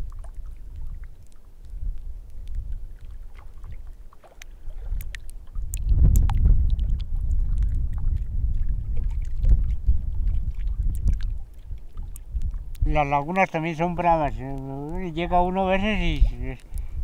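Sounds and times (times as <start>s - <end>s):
light ticks: 0.0s - 8.2s, 10.8s - 15.3s, 16.5s - 16.9s
wind buffeting microphone: 0.0s - 17.0s.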